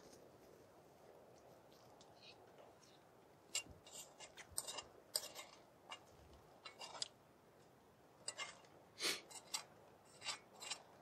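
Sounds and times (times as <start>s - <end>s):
spoon scraping metal bowl: 3.5s - 6.0s, 6.6s - 7.1s, 8.2s - 10.9s.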